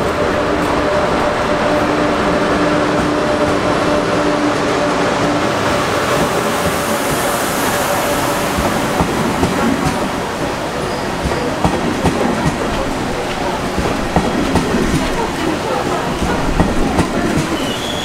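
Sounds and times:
train rolling rumble: 0:00.0 - 0:18.0
wheels clacking over rail joints: 0:08.5 - 0:18.0.

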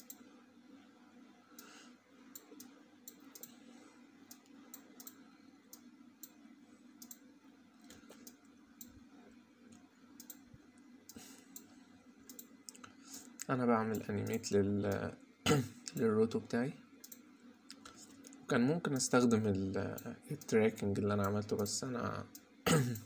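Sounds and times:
low steady hum: 0:00.0 - 0:23.0
faint computer mouse clicks: 0:02.3 - 0:03.6, 0:07.0 - 0:07.2, 0:09.7 - 0:10.4.

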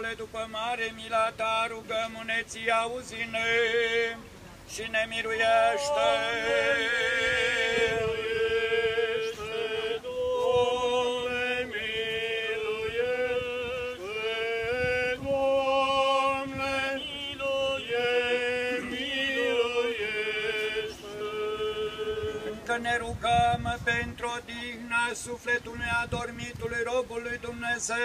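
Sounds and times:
liturgical chant singing: 0:00.0 - 0:28.0
low voice holding a drone note: 0:05.6 - 0:07.2.

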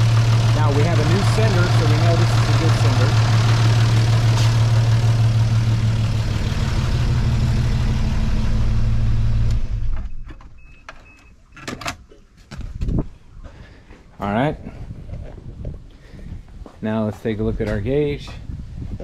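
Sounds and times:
car engine idling: 0:00.0 - 0:10.5.

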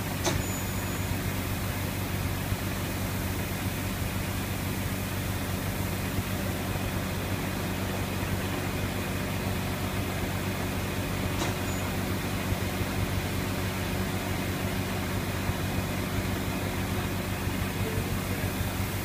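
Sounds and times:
heavy engine idling: 0:00.0 - 0:19.0.

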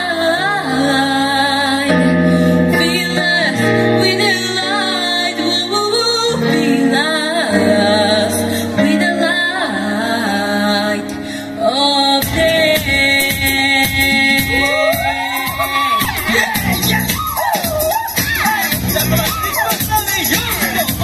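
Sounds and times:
woman singing: 0:00.0 - 0:18.6
backing music: 0:11.8 - 0:21.0.

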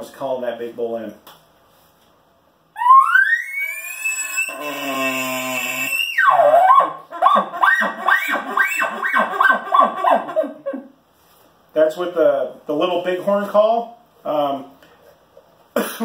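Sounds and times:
elk call whistle: 0:02.8 - 0:10.4
guttural growl: 0:04.5 - 0:05.9
elk call chuckles: 0:04.5 - 0:11.0.

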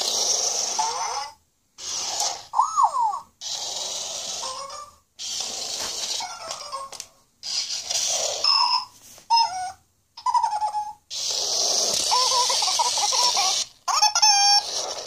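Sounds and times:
electronic squeaks and chirps: 0:05.9 - 0:14.9.

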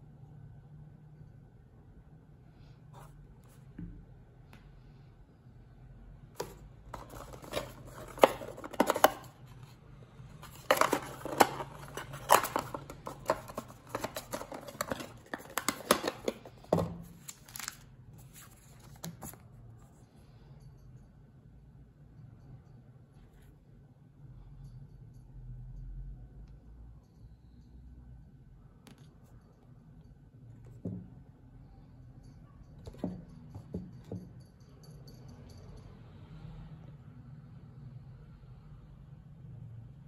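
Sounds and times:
cardboard rustling and scraping: 0:06.4 - 0:09.8, 0:10.4 - 0:19.4.

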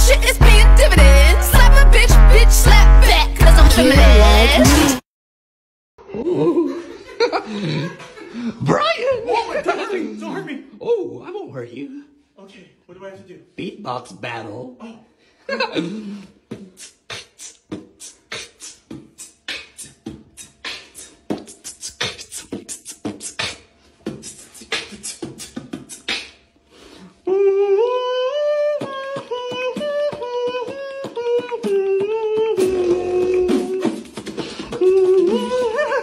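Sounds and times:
beatboxing: 0:00.0 - 0:05.0, 0:16.4 - 0:26.4, 0:27.3 - 0:36.0
pitched vocal melody: 0:00.0 - 0:05.0, 0:06.0 - 0:06.9, 0:15.7 - 0:36.0.

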